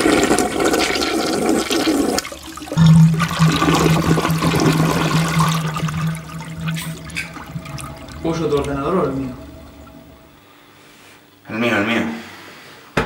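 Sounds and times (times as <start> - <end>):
toilet flushing: 0.0 - 11.2
steady low hum: 2.7 - 11.4.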